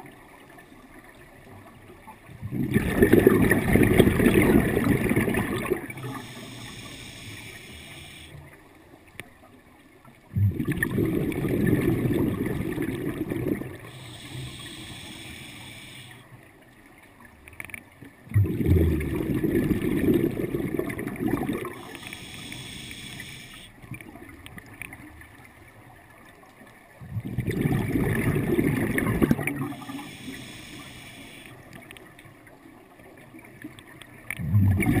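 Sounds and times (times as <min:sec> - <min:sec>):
rush of exhaled bubbles: 0:02.4 - 0:07.1, 0:10.3 - 0:15.0, 0:18.3 - 0:22.5, 0:27.0 - 0:30.8, 0:34.3 - 0:35.0
regulator inhalation hiss: 0:06.0 - 0:08.4, 0:13.8 - 0:16.3, 0:21.7 - 0:23.7, 0:29.6 - 0:31.6.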